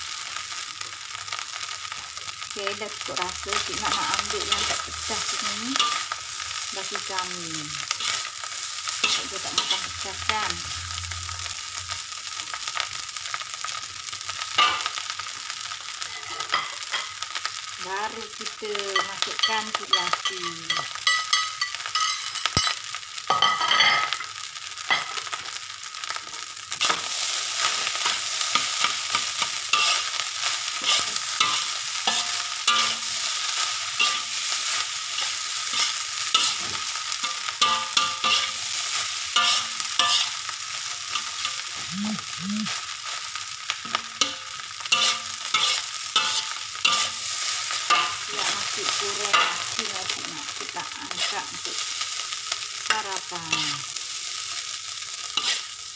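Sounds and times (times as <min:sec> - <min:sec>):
frying sizzle: 0:00.0 - 0:55.9
spatula scraping metal wok: 0:03.1 - 0:07.2, 0:07.8 - 0:11.9, 0:26.8 - 0:41.9, 0:43.8 - 0:52.0, 0:55.3 - 0:55.8.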